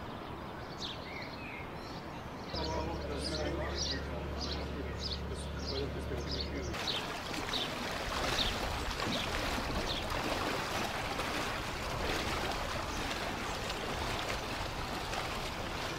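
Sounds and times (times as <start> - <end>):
floodwater sloshing around legs: 6.7 - 15.9.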